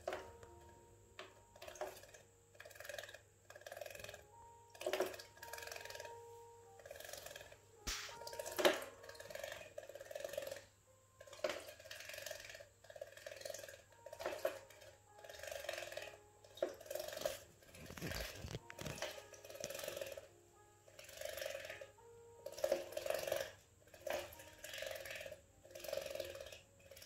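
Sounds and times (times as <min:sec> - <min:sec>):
spray hitting plastic hood: 0:07.9 - 0:08.2.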